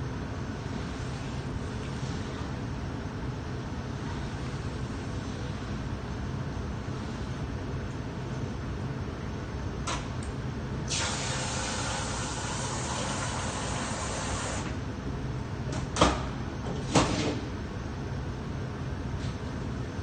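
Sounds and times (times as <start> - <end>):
oven humming: 0.0 - 20.0
hiss: 10.9 - 14.6.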